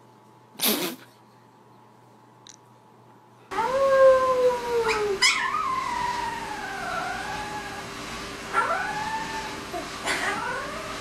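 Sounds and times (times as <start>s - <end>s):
dog howling: 3.5s - 7.9s, 8.5s - 11.0s.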